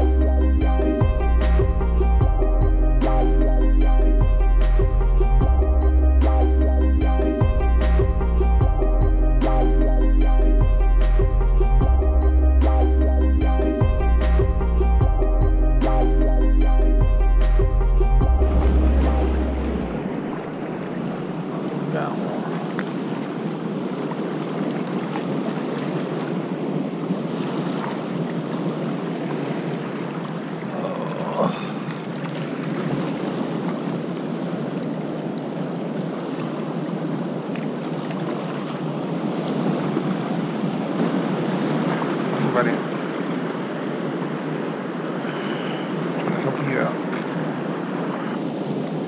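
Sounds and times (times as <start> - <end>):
water rushing from dam spillway: 20.2 - 34.3, 34.9 - 44.3, 46.2 - 47.6.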